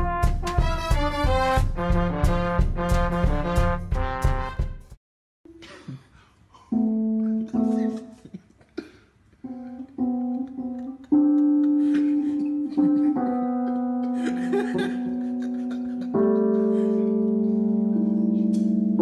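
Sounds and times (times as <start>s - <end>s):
clashing keyboard chords: 6.8s - 8.3s, 9.4s - 19.0s.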